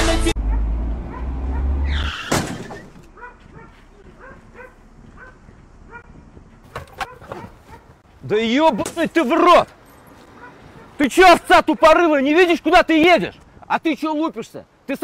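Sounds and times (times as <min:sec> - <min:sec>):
animal yelping: 0:00.5 - 0:06.1
car collision bang: 0:02.2 - 0:03.1.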